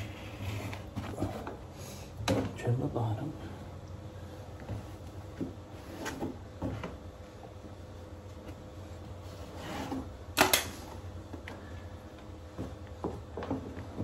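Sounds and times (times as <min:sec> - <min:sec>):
wallpaper scraping and rubbing: 0:00.0 - 0:02.0, 0:04.8 - 0:06.9, 0:08.8 - 0:11.0.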